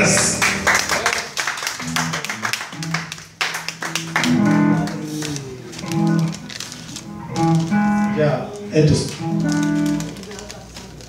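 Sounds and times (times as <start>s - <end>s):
electric guitar picked notes: 0.0s - 10.2s
clicks: 5.2s - 11.0s.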